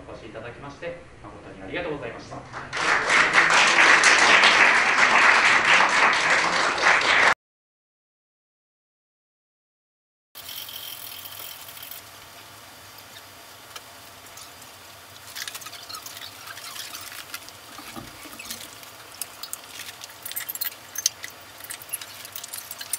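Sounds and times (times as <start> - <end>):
wooden bars and metal tubes clattering: 15.4 - 22.9.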